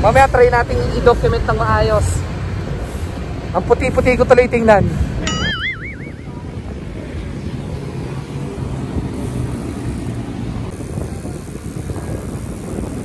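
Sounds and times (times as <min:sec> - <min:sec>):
low road noise rumble: 0:00.0 - 0:13.0
vehicle engine humming: 0:05.1 - 0:13.0.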